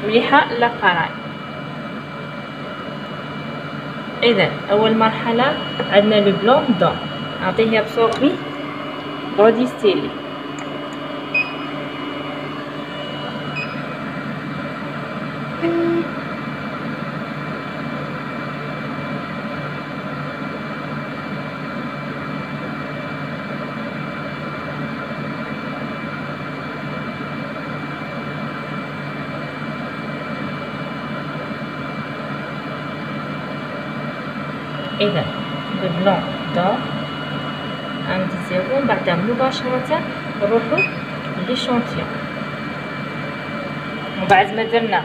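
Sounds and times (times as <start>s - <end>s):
analyser machine humming: 0.0s - 45.0s
short low beep: 11.3s - 11.7s, 12.8s - 13.8s, 40.8s - 41.0s.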